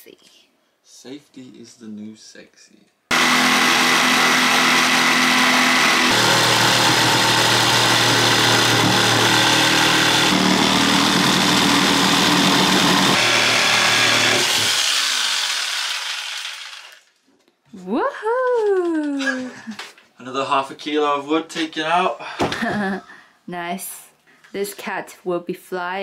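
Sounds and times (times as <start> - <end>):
jigsaw cutting wood: 3.1 - 17.2.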